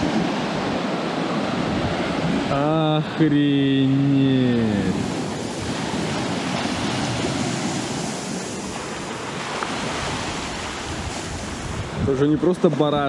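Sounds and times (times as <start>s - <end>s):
wind buffeting microphone: 0.0s - 3.2s, 4.4s - 13.0s
rough waves: 0.0s - 13.0s
storm wind: 0.0s - 13.0s
man's drawn-out voice: 2.5s - 5.2s.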